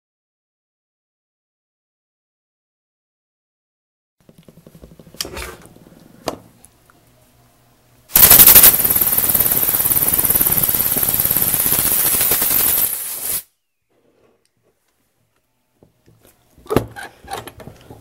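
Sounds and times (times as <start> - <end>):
air hissing: 8.1 - 13.5
air engine chattering: 8.2 - 13.0.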